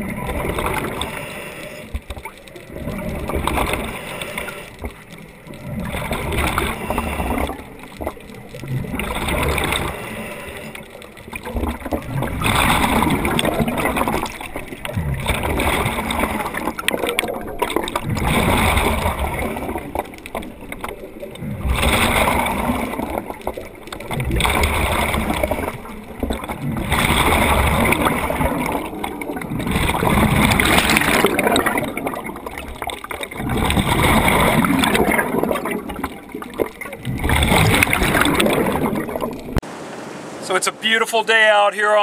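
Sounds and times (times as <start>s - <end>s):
exhaled bubbles rushing: 0.0s - 40.6s
diver inhaling through regulator: 0.8s - 2.0s, 3.6s - 4.9s, 6.4s - 7.6s, 9.5s - 11.0s.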